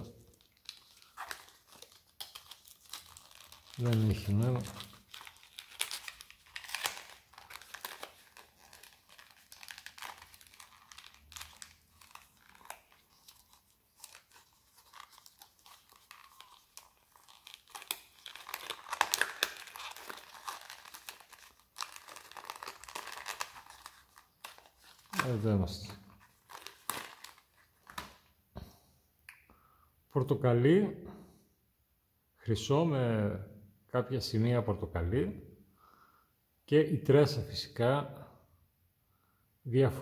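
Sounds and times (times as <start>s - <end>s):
packaging tearing: 0.0s - 25.4s, 26.1s - 28.2s
plastic packaging crinkling: 0.0s - 28.3s.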